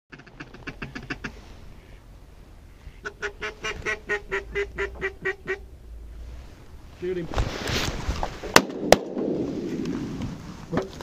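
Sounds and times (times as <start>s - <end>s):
goose honking: 0.1s - 5.7s.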